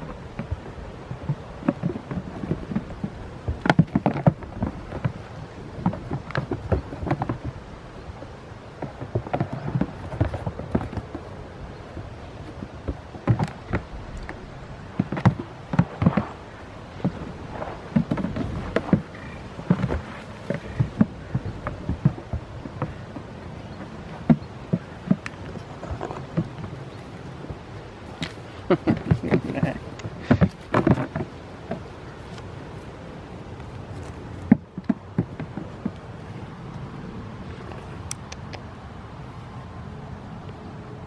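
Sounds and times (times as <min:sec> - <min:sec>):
hooves knocking on plastic blocks: 0:17.9 - 0:32.0.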